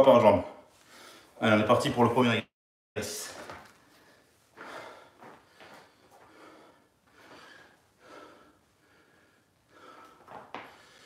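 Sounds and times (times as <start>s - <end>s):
man breathing with effort: 3.8s - 11.0s.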